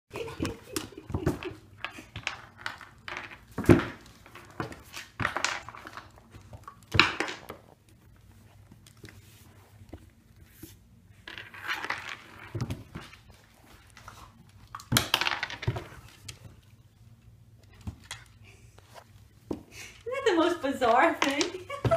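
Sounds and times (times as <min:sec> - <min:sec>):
ice cube skittering across wood floor: 0:01.7 - 0:07.8, 0:11.2 - 0:16.2.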